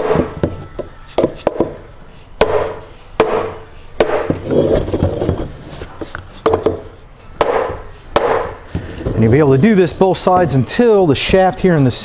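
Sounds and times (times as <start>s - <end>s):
dead blow hammer dull blows: 0.0s - 4.9s, 5.8s - 11.8s.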